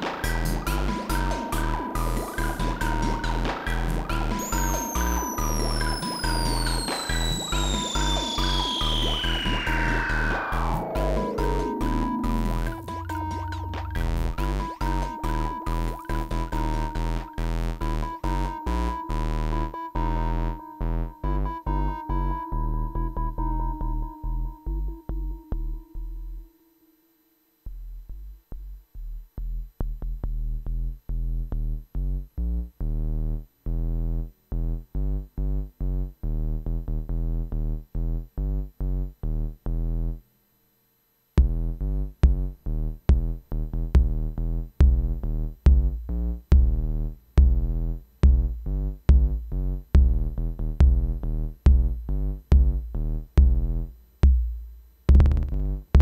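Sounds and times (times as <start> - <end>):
drum machine and synth bass: 0.0 - 26.2, 41.4 - 56.0.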